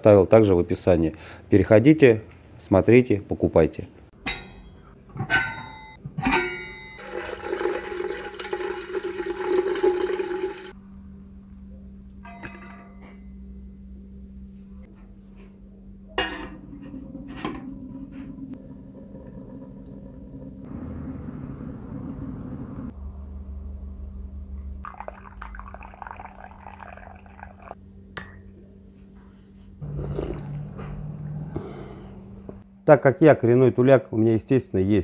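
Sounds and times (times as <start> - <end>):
low steady hum: 4.0 - 35.0
sharp ringing knocks: 4.2 - 7.0
water gushing: 7.0 - 10.8, 24.9 - 27.8.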